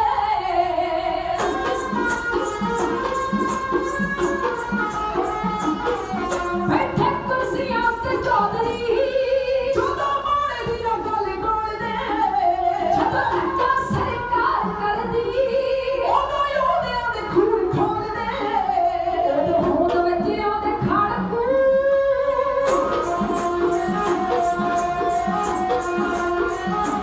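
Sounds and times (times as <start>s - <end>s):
sarangi: 0.0s - 27.0s
women singing: 0.0s - 27.0s
hand drum strokes: 1.4s - 7.4s, 22.6s - 27.0s.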